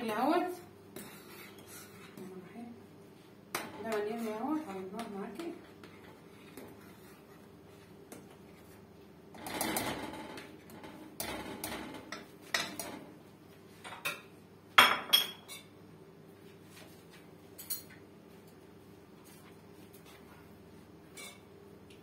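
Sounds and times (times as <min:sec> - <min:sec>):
kitchen items knocking and clattering: 0:09.3 - 0:13.1.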